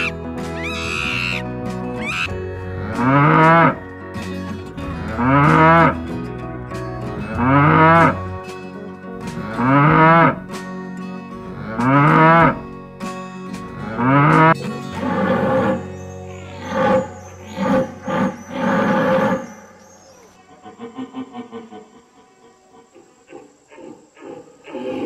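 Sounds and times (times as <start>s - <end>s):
soft background music: 0.0s - 20.7s
cow mooing: 2.1s - 3.8s, 5.1s - 6.0s, 7.3s - 8.2s, 9.4s - 10.4s, 11.5s - 12.6s, 13.8s - 15.9s, 16.5s - 19.5s.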